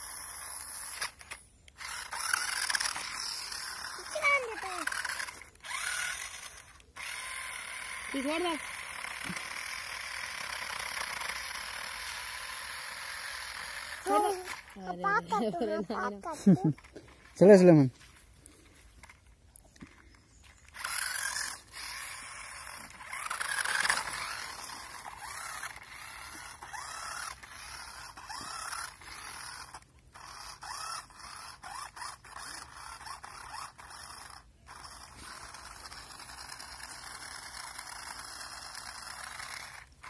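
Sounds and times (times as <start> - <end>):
toy car electric motor whining: 0.0 - 40.0
tyres scraping over dirt and leaves: 14.0 - 37.5.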